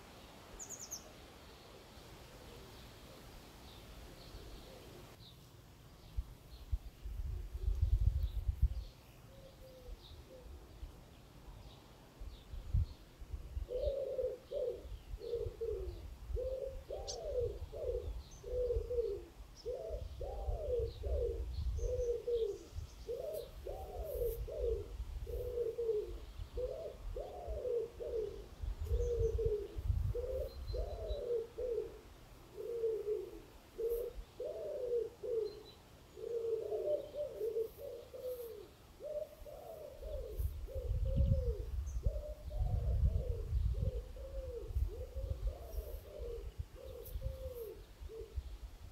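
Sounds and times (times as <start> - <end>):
faint small bird chirps: 0.6 - 1.1
pigeon cooing: 4.4 - 5.2, 9.3 - 10.6, 13.6 - 48.4.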